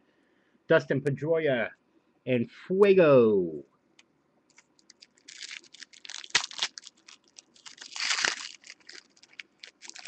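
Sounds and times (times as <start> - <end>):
wrapper crinkling and tearing: 4.7 - 10.0.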